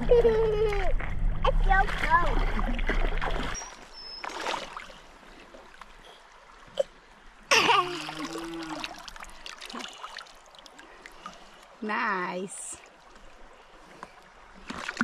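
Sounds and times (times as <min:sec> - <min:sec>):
creek water trickling: 0:00.0 - 0:15.0
water splash: 0:00.7 - 0:05.0, 0:07.5 - 0:10.7, 0:14.6 - 0:15.0.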